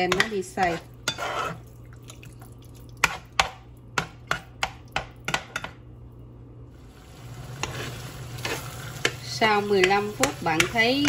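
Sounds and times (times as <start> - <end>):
spoon stirring thick mixture: 0.0 - 5.7
low steady hum: 0.0 - 11.0.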